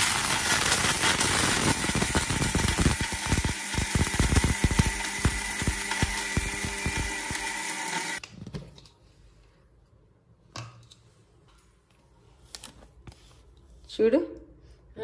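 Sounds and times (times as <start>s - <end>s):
mixer grinder motor grinding spices: 0.0s - 8.2s.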